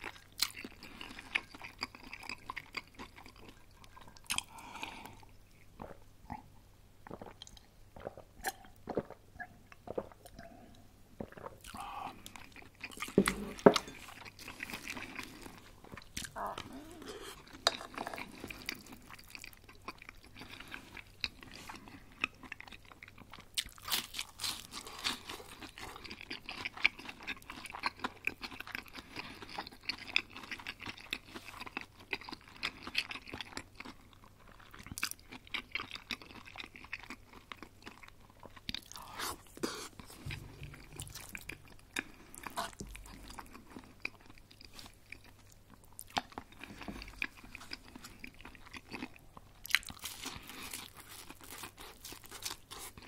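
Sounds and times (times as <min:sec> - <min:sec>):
chewing: 0:00.0 - 0:06.0, 0:09.8 - 0:53.0
crunching bites of crispy food: 0:22.3 - 0:39.5, 0:40.2 - 0:53.0.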